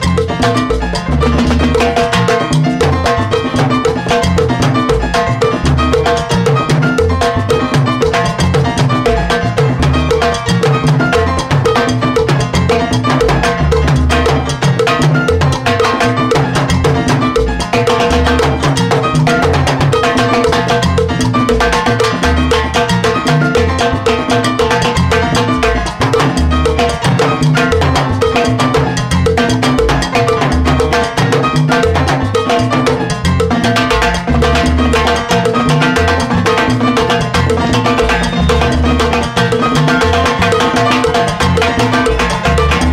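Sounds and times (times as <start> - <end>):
salsa band playing: 0.0 - 42.9
timbales drum solo: 0.0 - 42.9
cowbell struck: 34.6 - 42.9.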